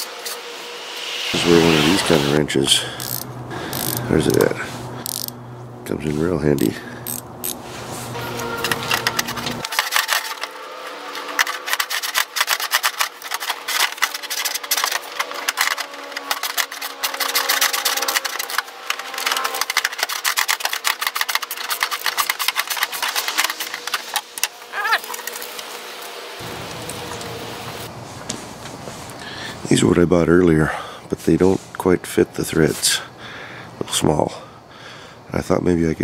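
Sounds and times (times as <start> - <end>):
rising squeak: 0.0 - 4.5, 7.9 - 20.2
ratcheting wrench clicking: 3.0 - 5.4, 6.6 - 7.6, 11.4 - 24.5.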